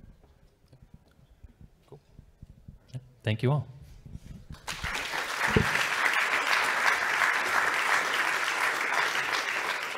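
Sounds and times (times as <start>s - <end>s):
audience applauding: 4.6s - 9.9s.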